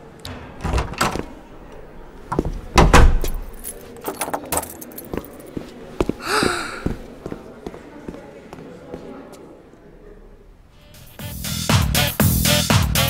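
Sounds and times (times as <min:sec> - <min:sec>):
door latch and handle clicking: 0:00.2 - 0:04.7.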